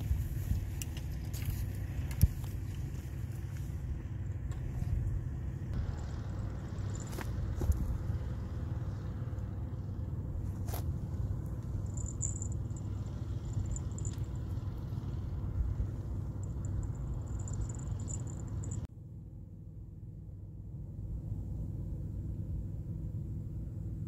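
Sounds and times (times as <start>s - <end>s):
faint high-pitched chirping: 16.3s - 18.9s.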